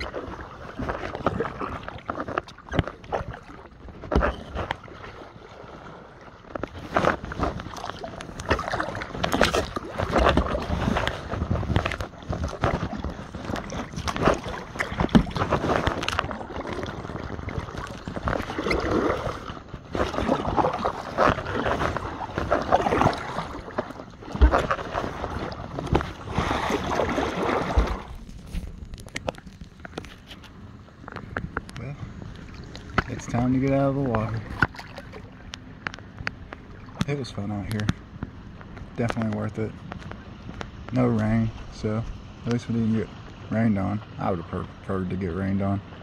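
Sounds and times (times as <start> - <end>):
paddle splashing in water: 0.0 - 31.5, 32.2 - 37.3
water sloshing against kayak: 0.0 - 46.0.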